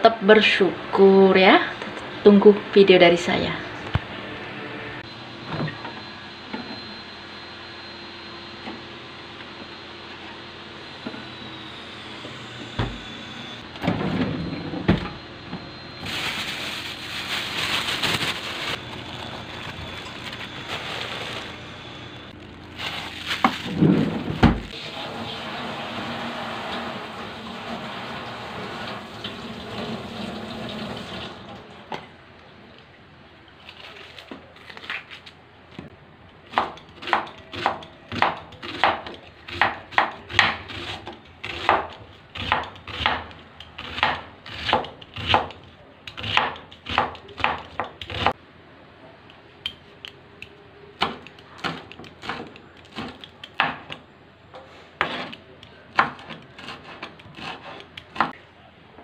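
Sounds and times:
tap running: 0:12.2 - 0:14.0
knife chopping on cutting board: 0:36.5 - 0:45.5, 0:46.1 - 0:48.3.

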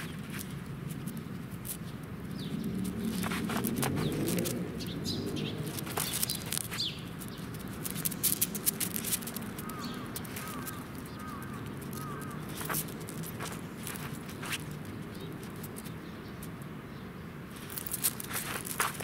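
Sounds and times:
hooked bird calls: 0:02.4 - 0:16.5.

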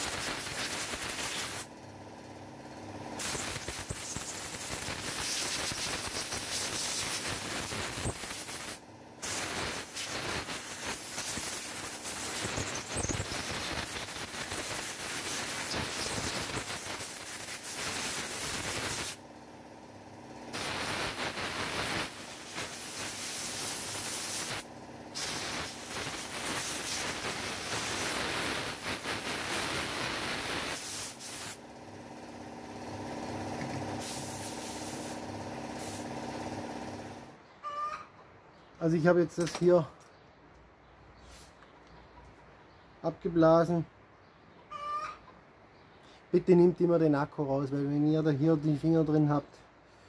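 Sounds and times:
compressed air blow gun hissing: 0:00.0 - 0:01.7, 0:03.2 - 0:19.2, 0:20.5 - 0:31.7, 0:32.9 - 0:37.2
machine hum: 0:00.1 - 0:30.8, 0:31.4 - 0:37.4.

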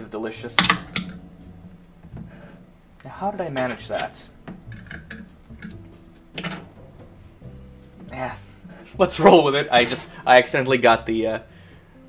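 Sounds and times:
soft background music: 0:00.0 - 0:12.0
can tab cracking: 0:04.6 - 0:06.2.

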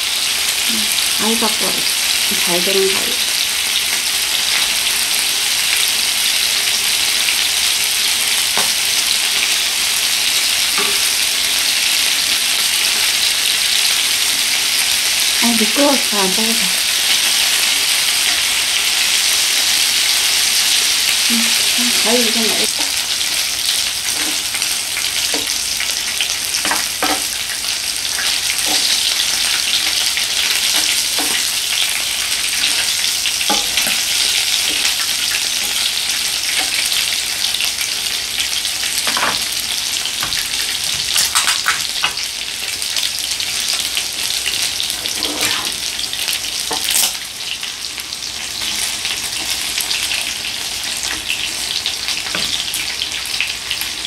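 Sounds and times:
food sizzling on a grill pan: 0:00.0 - 0:54.0
spoon and chopsticks tapping pan: 0:10.8 - 0:11.1, 0:25.3 - 0:25.6, 0:26.6 - 0:27.4, 0:28.6 - 0:29.0, 0:30.7 - 0:31.5, 0:33.5 - 0:34.0.

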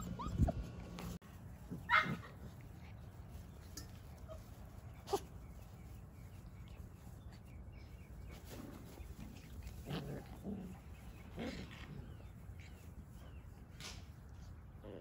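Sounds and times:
puppies growling and yipping: 0:00.0 - 0:03.2, 0:08.2 - 0:13.5.

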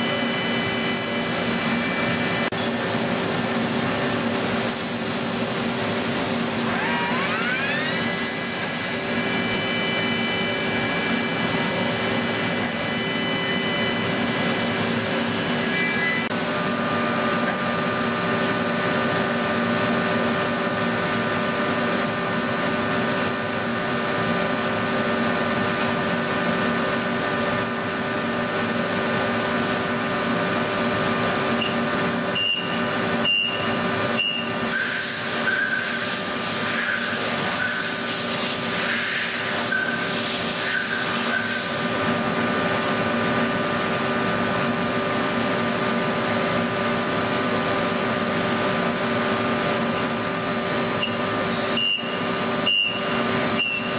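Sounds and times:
machine hum with spindle whine: 0:00.0 - 0:53.9.

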